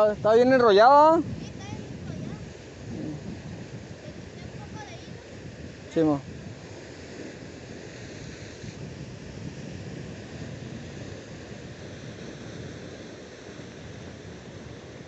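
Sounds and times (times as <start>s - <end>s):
sea surf churning against rocks: 0.0s - 15.0s
wind rumbling on microphone: 0.0s - 15.0s.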